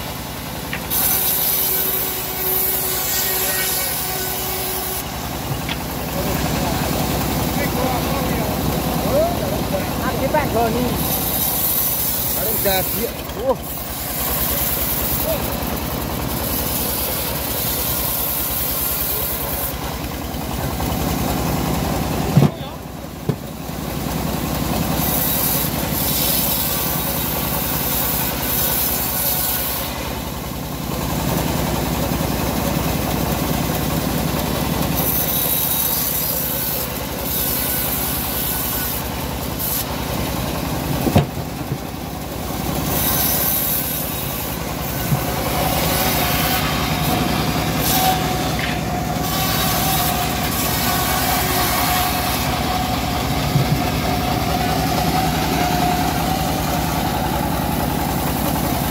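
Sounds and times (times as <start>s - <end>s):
engine drone: 0.0s - 58.9s
bandsaw blade hissing through wood: 0.8s - 5.2s, 9.9s - 19.9s, 24.9s - 30.1s, 35.0s - 40.0s, 42.8s - 53.5s.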